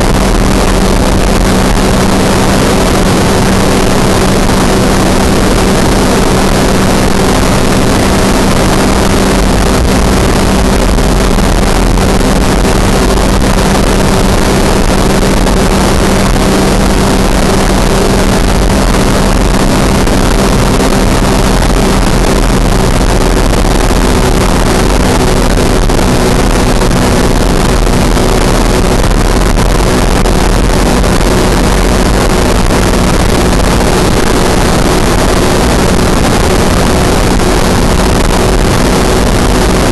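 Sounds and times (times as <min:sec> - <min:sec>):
aircraft engine drone: 0:00.0 - 0:39.9
wind on microphone: 0:00.0 - 0:39.9.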